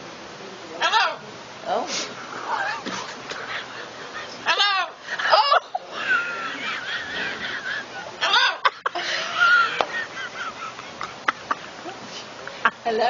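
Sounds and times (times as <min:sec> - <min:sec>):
loud cries: 0:00.8 - 0:01.2, 0:02.4 - 0:09.8
woman laughing hard: 0:02.5 - 0:12.0.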